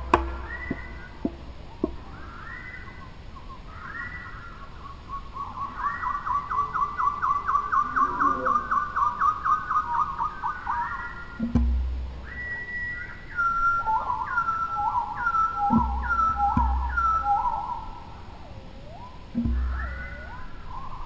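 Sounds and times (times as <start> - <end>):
low thump: 0.0 - 2.0, 11.4 - 12.3, 15.7 - 17.2, 19.3 - 20.3
bird calling: 0.0 - 21.0.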